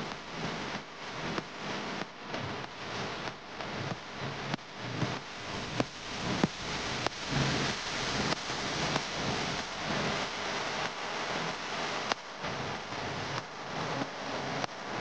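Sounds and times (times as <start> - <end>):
constant noisy hiss: 0.0 - 15.0.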